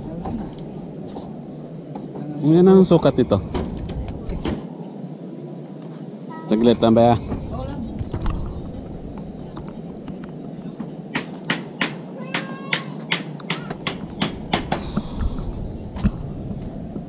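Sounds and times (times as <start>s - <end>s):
steady low background noise: 0.0s - 17.0s
sharp knocks: 10.8s - 16.1s.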